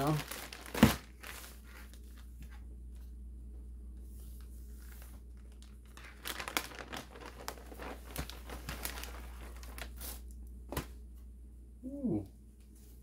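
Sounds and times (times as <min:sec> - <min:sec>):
plastic bag crinkling: 0:00.0 - 0:02.3, 0:04.8 - 0:10.3.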